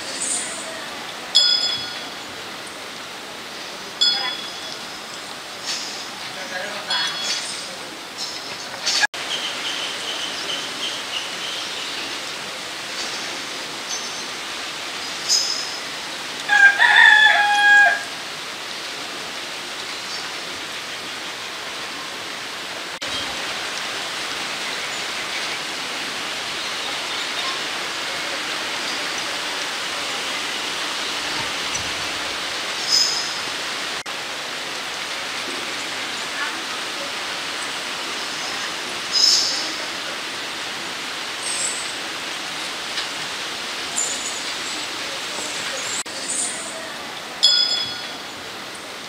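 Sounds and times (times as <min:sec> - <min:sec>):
birds chirping: 0:00.0 - 0:18.8, 0:19.6 - 0:34.0, 0:37.5 - 0:42.9, 0:43.9 - 0:49.0
forest hiss: 0:00.0 - 0:49.0
rooster crowing: 0:16.5 - 0:18.3.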